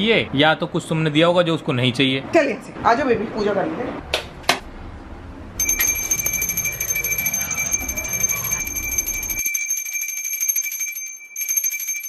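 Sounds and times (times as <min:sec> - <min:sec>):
hand bell ringing: 0:05.6 - 0:12.0.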